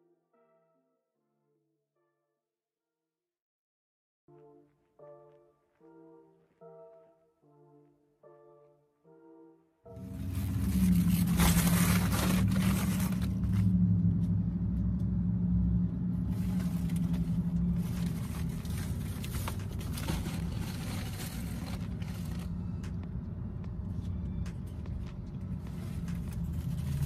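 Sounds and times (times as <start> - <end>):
plastic rustling: 10.0 - 13.6, 16.3 - 22.6
car engine idling: 10.0 - 27.0.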